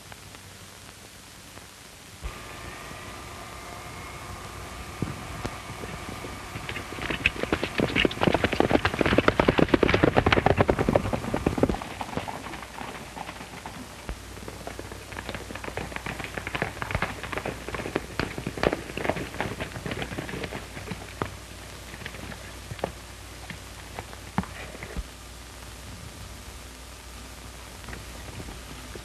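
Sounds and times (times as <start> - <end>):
old film soundtrack hiss: 0.0 - 29.0
horse hooves galloping on dirt: 5.0 - 25.1.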